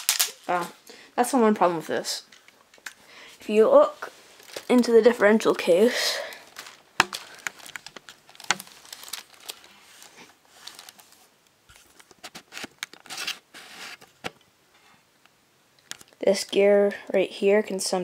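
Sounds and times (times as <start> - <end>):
rustling against clothing: 3.4 - 14.3
plastic clicks: 15.8 - 16.2.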